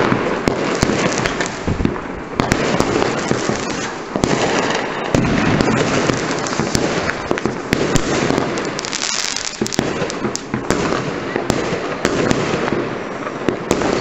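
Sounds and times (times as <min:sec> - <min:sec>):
fireworks popping and banging: 0:00.0 - 0:14.0.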